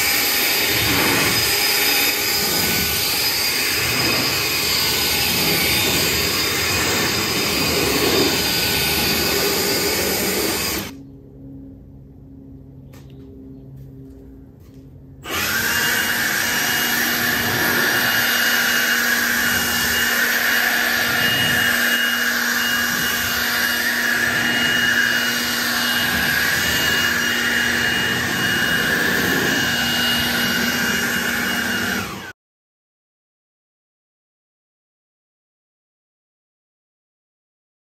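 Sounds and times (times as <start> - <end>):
leaf blower rushing air: 0.0 - 11.0, 15.2 - 32.4.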